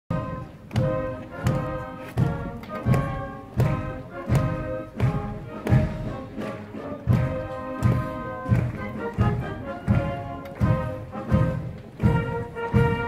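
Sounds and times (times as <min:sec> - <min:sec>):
low drum thumps: 0:00.1 - 0:06.4
band playing a march: 0:00.1 - 0:13.0.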